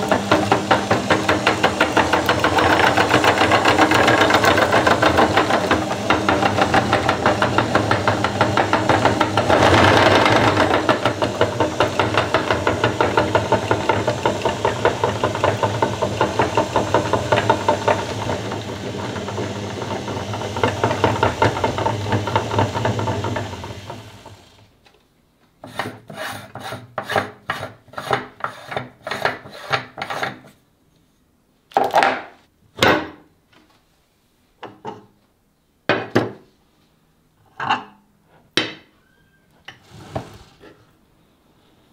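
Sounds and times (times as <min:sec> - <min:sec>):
meat grinder grinding: 0:00.0 - 0:24.6.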